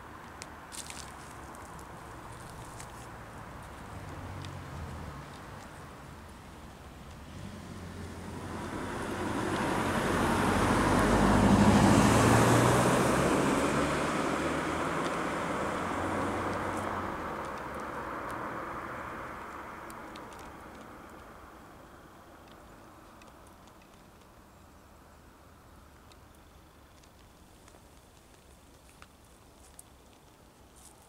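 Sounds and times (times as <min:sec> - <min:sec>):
vehicle driving past: 0:07.3 - 0:20.1.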